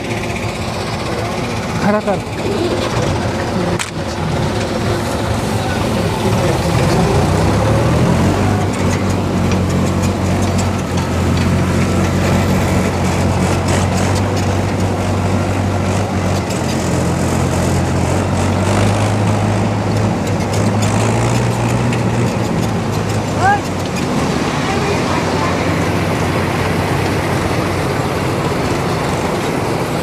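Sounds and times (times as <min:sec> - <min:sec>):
combine harvester cutting: 0:00.0 - 0:30.0
tractor engine droning: 0:00.0 - 0:30.0.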